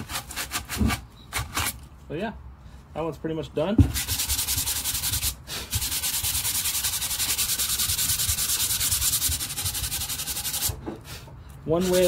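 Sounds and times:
sandpaper sanding wood: 3.9s - 10.8s, 11.7s - 12.0s.

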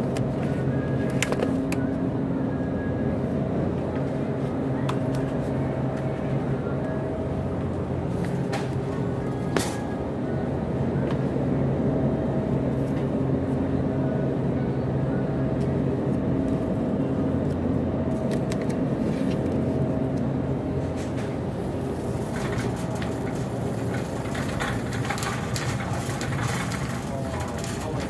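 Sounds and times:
shopping cart rolling on concrete: 20.8s - 28.0s.

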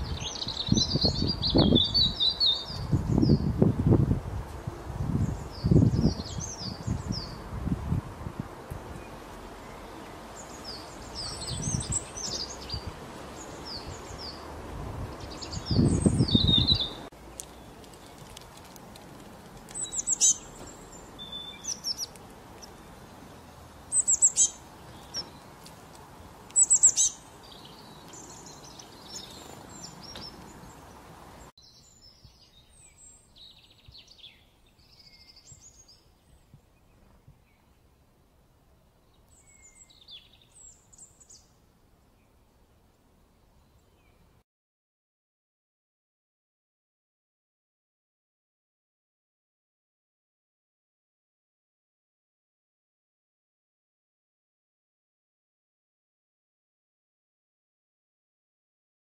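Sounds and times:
songbirds chirping: 0.0s - 44.4s.

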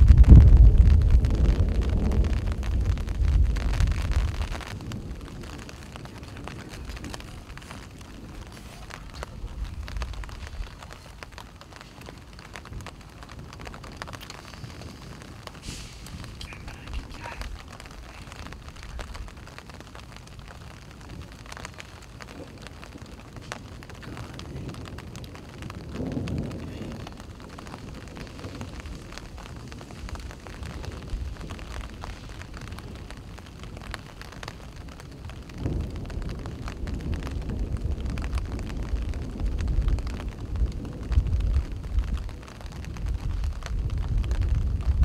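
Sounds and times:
wind rumble on microphone: 0.0s - 45.0s
faint ticks: 14.0s - 19.3s.

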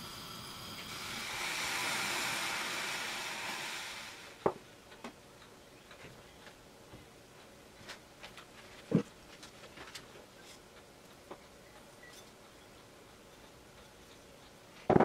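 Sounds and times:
milk hissing in saucepan: 0.0s - 4.4s.

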